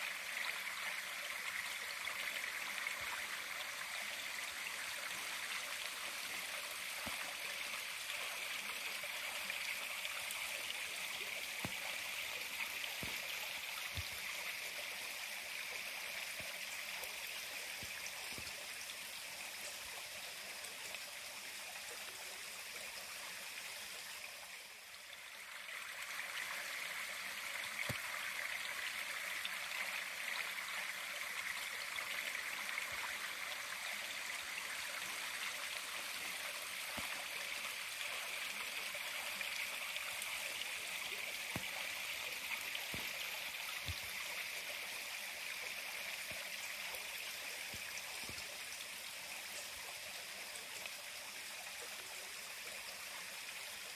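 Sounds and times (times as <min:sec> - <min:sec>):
creek water rushing: 0:00.0 - 0:53.9.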